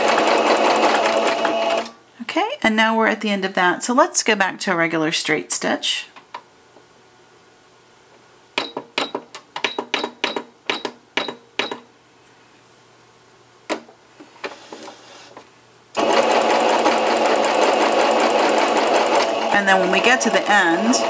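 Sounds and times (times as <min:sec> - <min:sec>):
sewing machine running: 0:00.0 - 0:01.9, 0:16.0 - 0:21.0.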